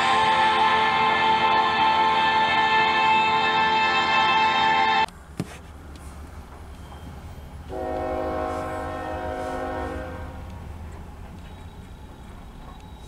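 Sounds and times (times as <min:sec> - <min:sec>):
locomotive air horn blast: 0:00.0 - 0:05.0, 0:07.7 - 0:10.5.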